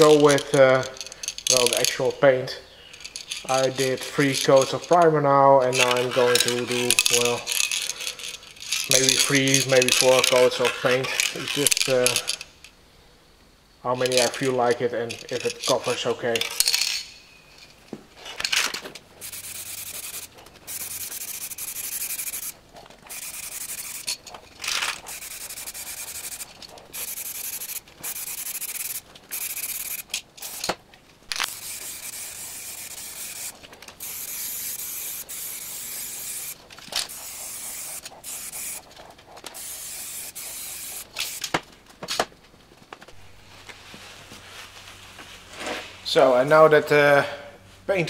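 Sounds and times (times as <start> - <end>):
aerosol spray can hissing: 19.2 - 24.1, 25.0 - 30.7, 31.3 - 41.5.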